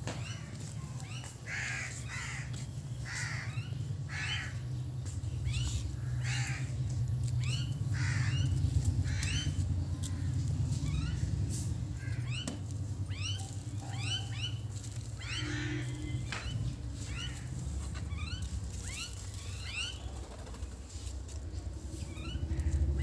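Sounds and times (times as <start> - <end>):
low steady rumble: 0.4 - 23.0
crows cawing: 1.4 - 4.7, 5.7 - 11.3, 12.0 - 12.6, 13.2 - 20.1.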